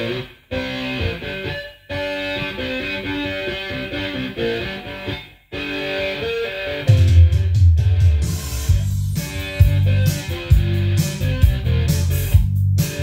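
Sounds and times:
guitar music from cassette: 0.0s - 13.0s
heavy low beat with bass: 6.9s - 13.0s.

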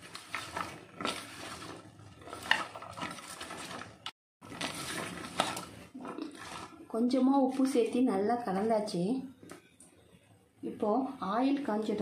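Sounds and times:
wet potato strips tossed in steel bowl: 0.0s - 7.8s.

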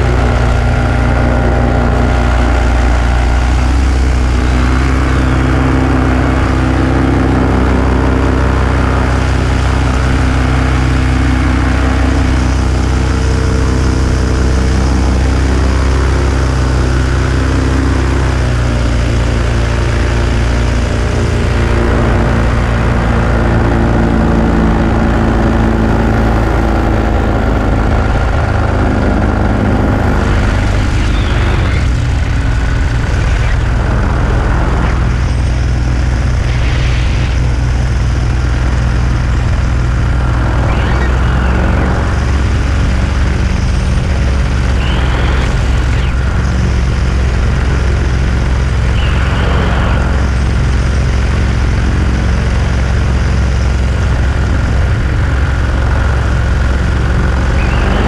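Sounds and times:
small aircraft engine and propeller: 0.0s - 58.0s.

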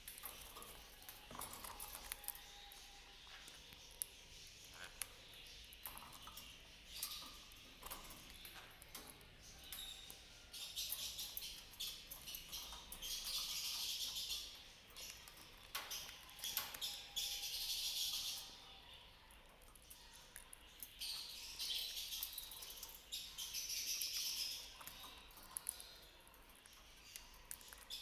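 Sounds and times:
birds clicking and tapping in cage: 0.0s - 28.0s
parrots chattering: 1.2s - 8.7s.

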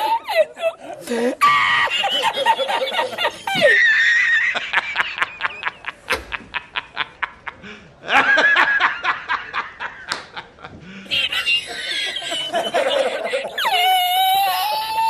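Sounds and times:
high-pitched squealing laughter: 0.0s - 0.8s, 1.4s - 4.6s, 11.1s - 15.0s.

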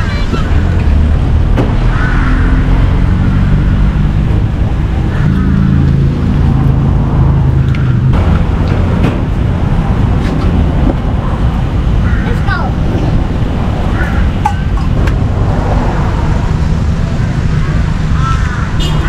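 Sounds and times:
road traffic noise: 0.0s - 19.0s
vehicle engine humming: 0.0s - 19.0s.

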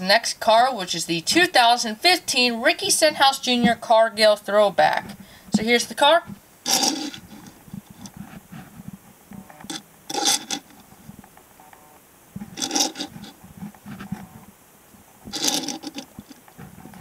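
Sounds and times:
toy car scraping on wooden table: 6.7s - 7.6s, 12.6s - 13.4s, 15.3s - 16.2s.

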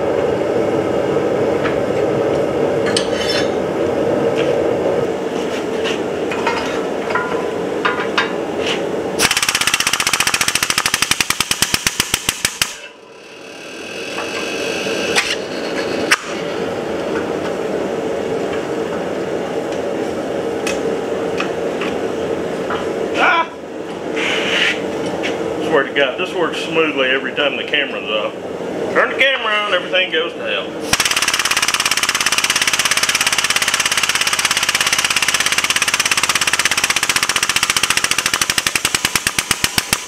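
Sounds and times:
sharp metal clicks: 31.0s - 40.0s.

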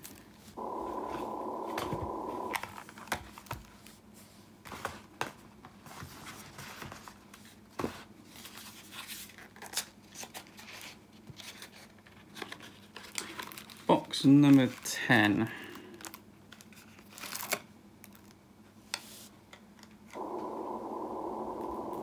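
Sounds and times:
muffled rushing noise: 0.6s - 2.6s, 20.2s - 22.0s
cards and boxes tapping and rustling: 4.6s - 13.9s.

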